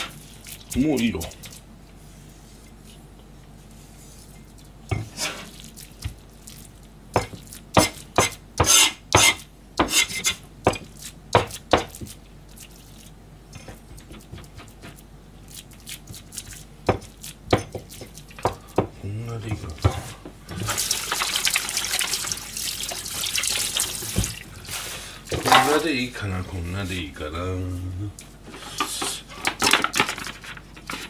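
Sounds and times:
cleaver chopping on cutting board: 7.2 - 12.2, 16.9 - 18.9
blade scraping cutting board: 8.6 - 10.4.

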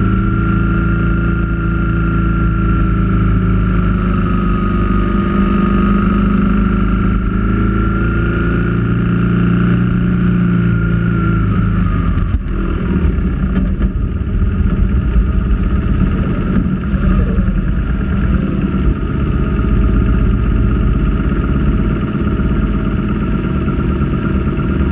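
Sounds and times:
motorcycle engine running: 0.0 - 24.9.

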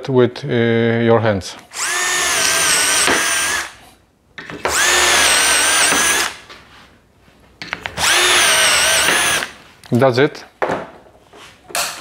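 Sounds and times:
cordless drill whining: 1.7 - 3.8, 4.7 - 6.4, 8.0 - 9.6.

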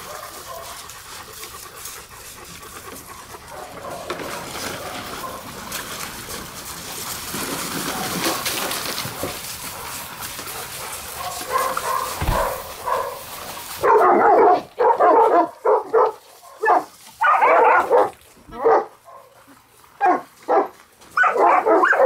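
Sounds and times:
dog barking loudly: 0.0 - 0.8, 3.5 - 5.5, 10.8 - 19.3, 20.0 - 22.0
dogs splashing in water: 0.0 - 14.6.

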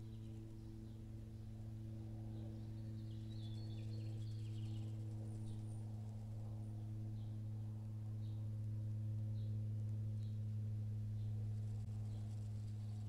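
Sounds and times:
low electrical hum: 0.0 - 13.0
faint bird chirps: 2.3 - 5.8.

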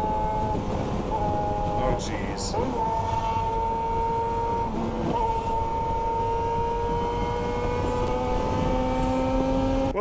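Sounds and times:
wind noise: 0.0 - 9.3
road noise: 0.0 - 10.0
motorcycle engine running: 2.5 - 10.0.

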